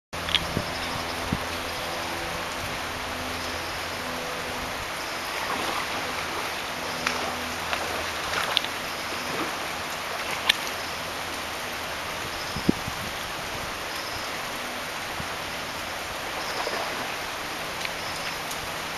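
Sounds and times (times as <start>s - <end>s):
stream water over stones: 0.2s - 18.9s.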